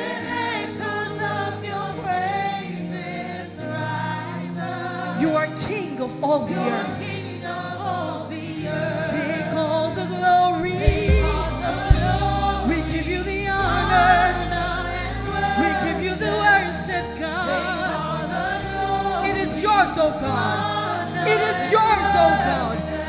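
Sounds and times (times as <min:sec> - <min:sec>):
singer and choir singing: 0:00.0 - 0:23.0
band accompaniment: 0:08.6 - 0:23.0
sharp drum hits: 0:10.6 - 0:12.6
deep bass notes: 0:10.6 - 0:16.4.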